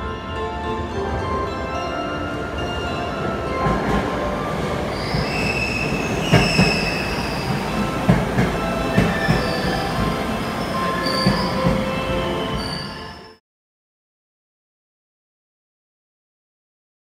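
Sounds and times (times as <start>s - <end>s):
train rumble: 0.0s - 13.4s
wheels clunking over rail joints: 2.3s - 12.6s
train wheels squealing: 2.7s - 13.4s.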